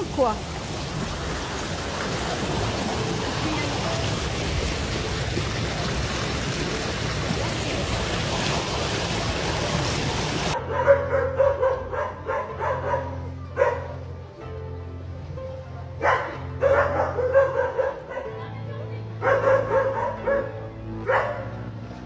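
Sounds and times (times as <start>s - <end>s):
floodwater rushing and churning: 0.0s - 10.6s
dog barking rapidly: 10.6s - 13.9s, 16.0s - 18.3s, 19.2s - 21.5s.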